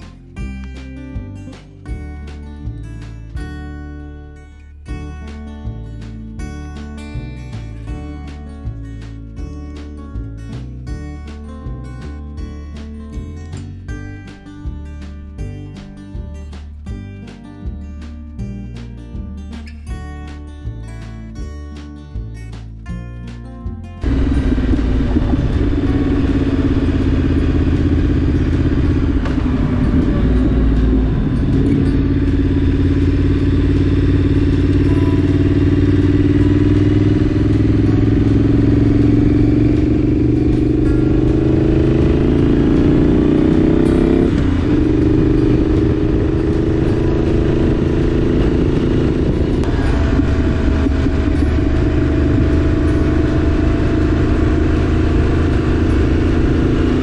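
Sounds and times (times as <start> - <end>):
motorcycle engine accelerating: 24.0 - 57.0.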